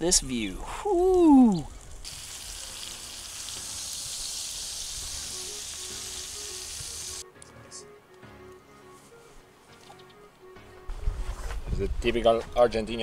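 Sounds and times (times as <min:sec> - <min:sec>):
food sizzling: 0:00.8 - 0:07.2.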